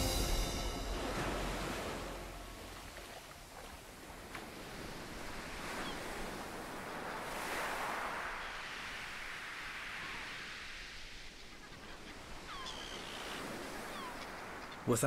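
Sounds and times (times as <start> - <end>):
ocean surf breaking: 0.0 - 11.5.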